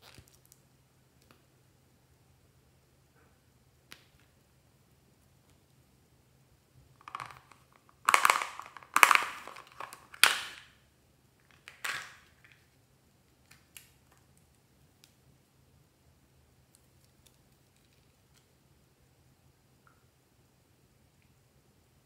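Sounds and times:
plastic toy crunching: 7.0 - 10.7.

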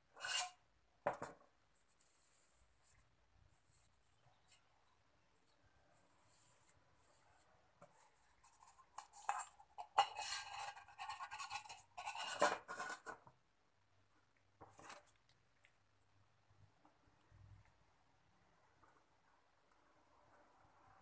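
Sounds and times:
tool scraping on metal can: 0.2 - 0.6, 8.5 - 13.2.

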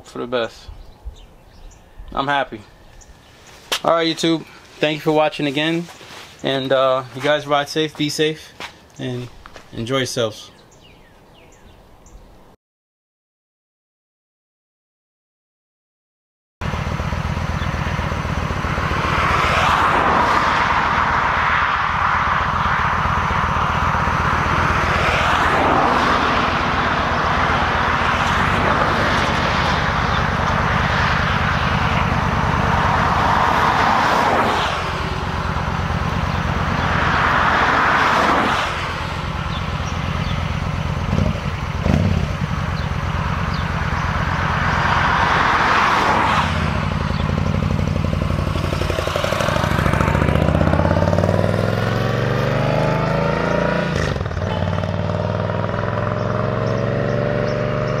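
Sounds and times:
passing traffic: 0.0 - 12.6, 16.6 - 58.0
motorcycle engine idling: 16.6 - 18.8, 39.2 - 44.4.

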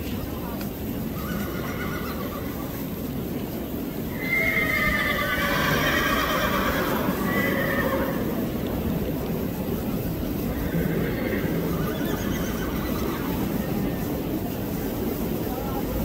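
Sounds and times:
horse neighing: 1.1 - 2.7, 4.1 - 8.4, 10.5 - 13.5.

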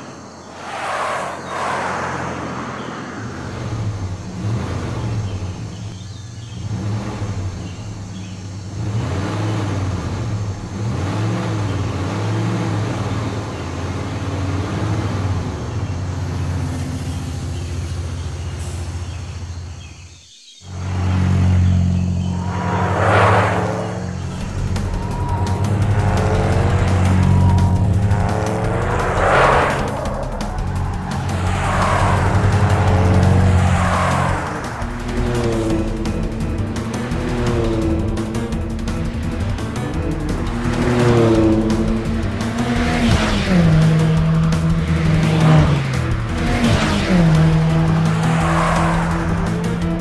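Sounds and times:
vehicle rushing past: 0.0 - 5.8, 20.7 - 50.0
cartoon car engines revving: 0.0 - 19.8, 20.7 - 50.0.

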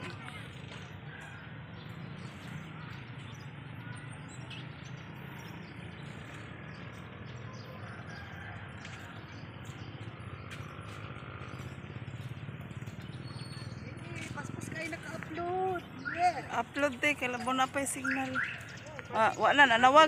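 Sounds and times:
bird chirps: 11.4 - 14.0, 15.6 - 19.7.

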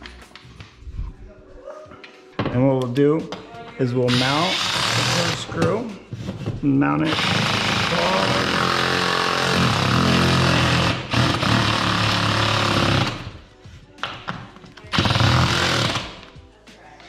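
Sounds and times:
power driver driving screw: 4.1 - 5.6, 7.0 - 13.4, 14.9 - 16.2.

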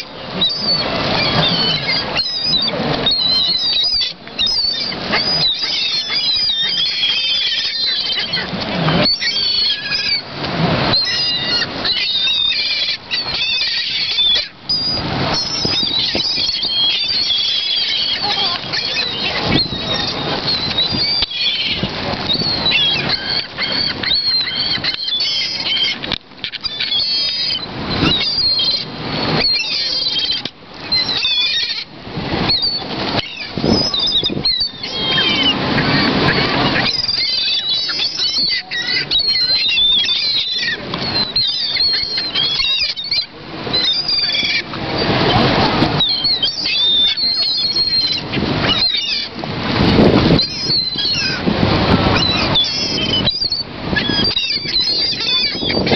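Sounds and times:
gulls calling: 0.0 - 55.9
wings flapping: 0.3 - 43.2.

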